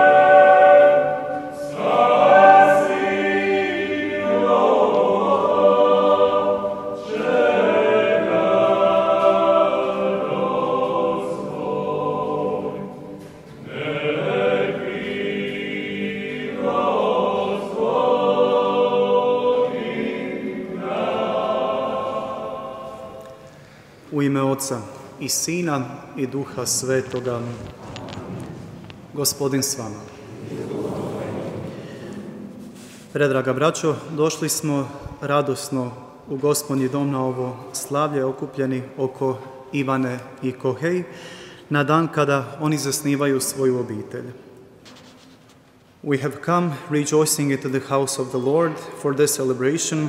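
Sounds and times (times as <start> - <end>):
choir singing: 0.0 - 23.6, 29.6 - 33.9.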